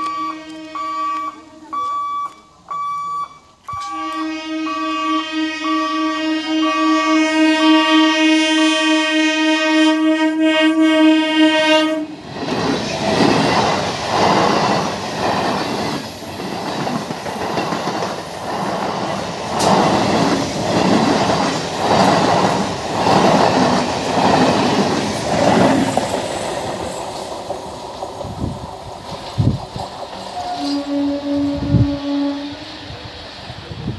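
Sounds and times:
train horn: 0.0s - 1.7s, 3.7s - 12.2s, 30.3s - 33.0s
train wheels clacking over rail joints: 12.3s - 31.0s.

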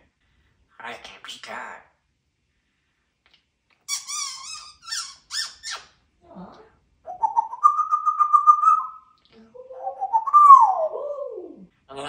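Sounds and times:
parrot squeaking: 3.8s - 6.0s, 7.1s - 11.6s.

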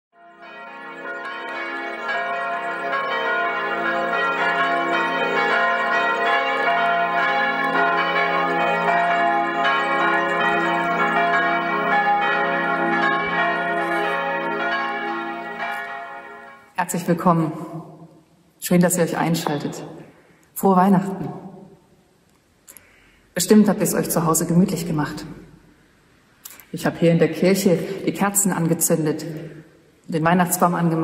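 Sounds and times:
church bells pealing: 0.2s - 16.8s.

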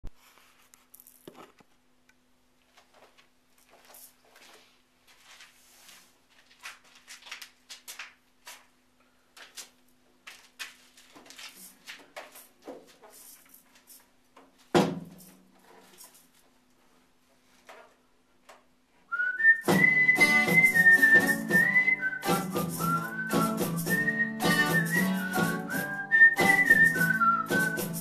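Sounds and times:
guitar handling rustles and scrapes: 2.7s - 7.6s, 9.4s - 18.1s.

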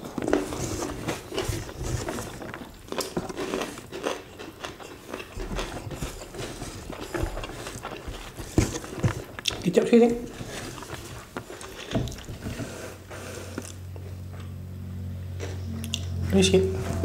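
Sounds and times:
chewing and lip smacking: 2.0s - 9.7s.

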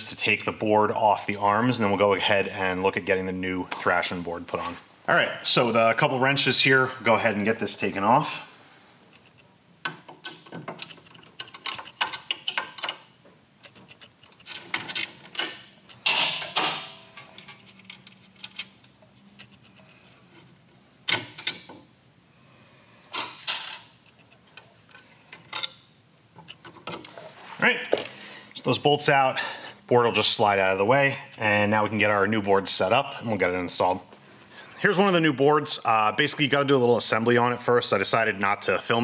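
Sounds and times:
wrenches clicking on steel bolts: 9.8s - 18.7s.

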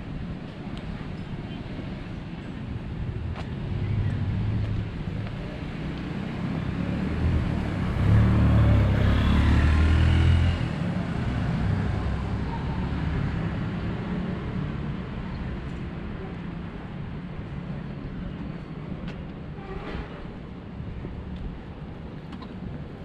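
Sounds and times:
steady traffic hum: 0.0s - 23.0s
vehicle passing: 6.1s - 12.3s.

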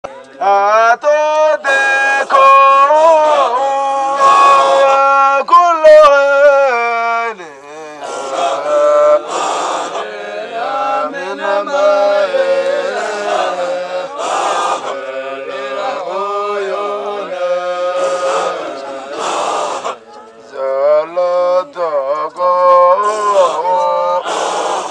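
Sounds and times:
men chanting: 0.4s - 24.9s
short noisy bursts: 8.0s - 10.2s, 13.0s - 15.2s, 17.5s - 20.0s, 24.2s - 24.9s.

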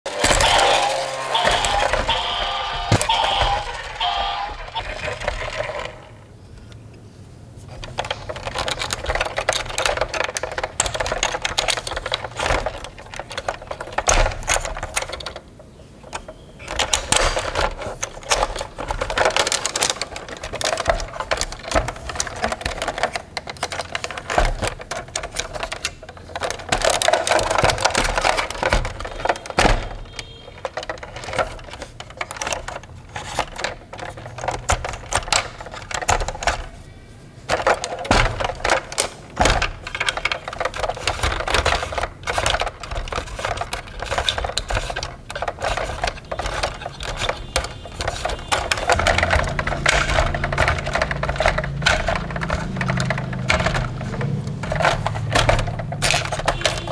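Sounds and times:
plastic toy clicking and rattling: 0.1s - 6.8s, 7.6s - 56.9s.

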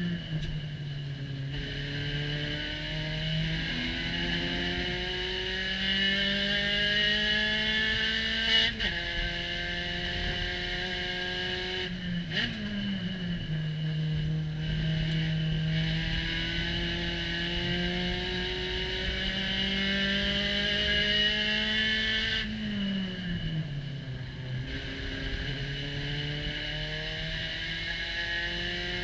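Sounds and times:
race car engine revving: 1.3s - 29.0s.

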